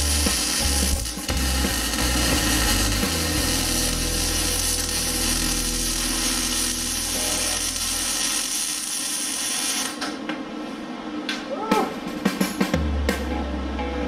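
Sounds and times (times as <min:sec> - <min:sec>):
welder arc hissing: 0:00.0 - 0:10.2.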